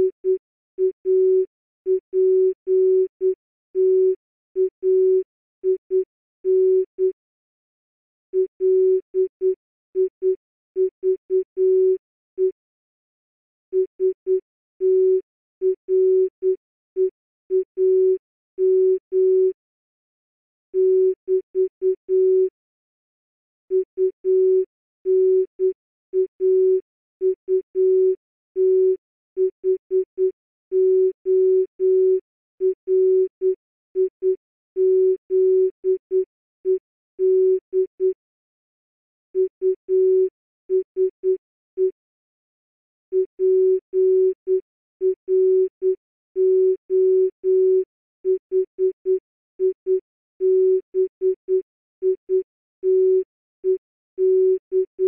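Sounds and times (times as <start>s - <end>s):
morse code tone: 8.4s - 12.5s, 13.8s - 19.5s, 23.7s - 38.2s, 39.4s - 41.9s, 43.1s - 49.8s, 50.4s - 55.0s.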